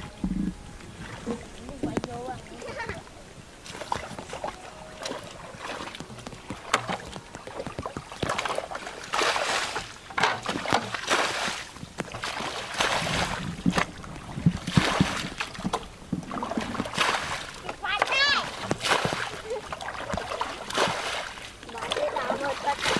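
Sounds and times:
water splashing and sloshing: 0.0s - 22.9s.

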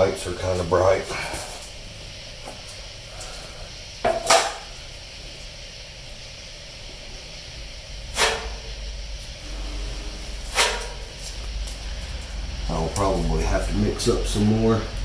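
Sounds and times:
low shop hum: 0.0s - 15.0s
spreader scraping filler on metal: 9.6s - 11.1s.

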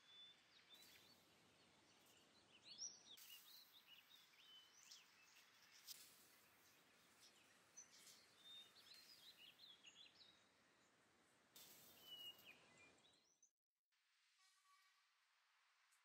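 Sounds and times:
small birds chirping: 0.0s - 11.0s, 11.6s - 13.5s
soft hiss: 3.2s - 9.3s, 11.6s - 12.7s.

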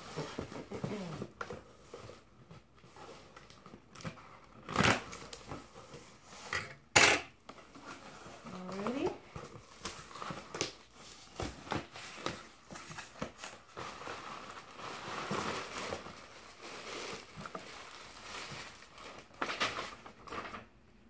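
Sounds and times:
paper rustling and crinkling: 7.5s - 20.7s.

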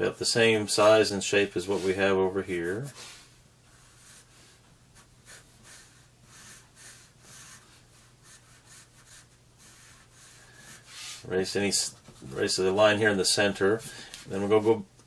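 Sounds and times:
pencil scratching on paper: 3.7s - 12.6s.

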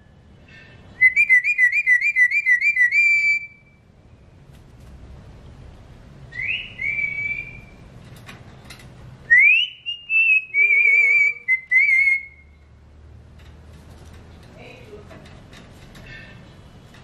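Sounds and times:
parakeet whistling: 1.0s - 3.8s, 6.3s - 7.8s, 9.3s - 12.6s.

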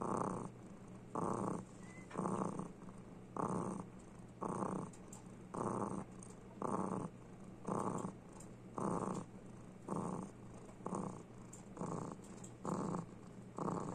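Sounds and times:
cat purring: 0.0s - 13.9s.

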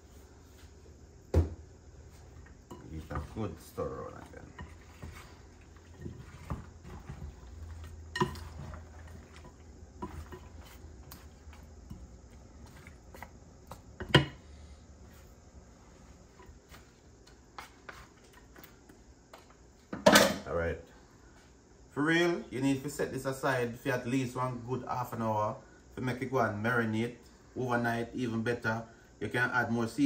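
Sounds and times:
wooden utensils knocking glass bowl: 8.1s - 10.5s.

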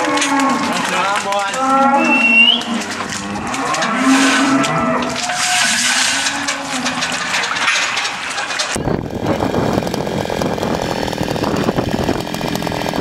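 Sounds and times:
cows mooing: 0.0s - 7.6s.

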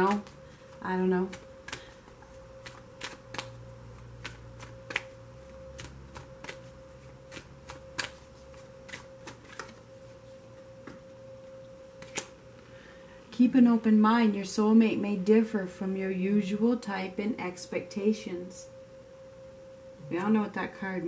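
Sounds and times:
cards being shuffled: 0.0s - 9.8s, 12.0s - 12.4s
faint electrical tone: 0.0s - 21.0s.

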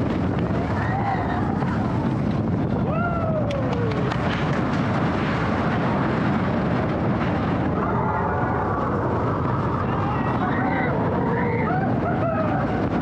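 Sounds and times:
roller coaster rumbling on track: 0.0s - 13.0s
wind rushing: 0.0s - 13.0s
rider screaming: 9.8s - 13.0s.

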